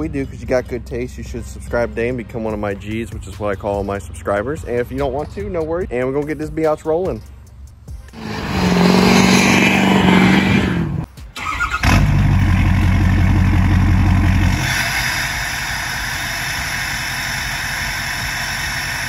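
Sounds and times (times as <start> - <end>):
pickup engine high revs burnout: 8.1 - 11.1
diesel engine idling: 11.0 - 19.0.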